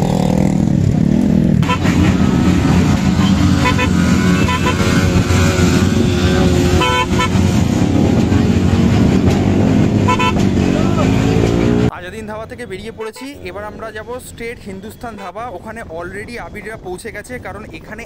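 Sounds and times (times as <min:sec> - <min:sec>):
motorcycle engines in traffic: 0:00.0 - 0:18.0
vehicle horn toots: 0:01.6 - 0:07.8, 0:10.0 - 0:11.2, 0:12.9 - 0:13.5.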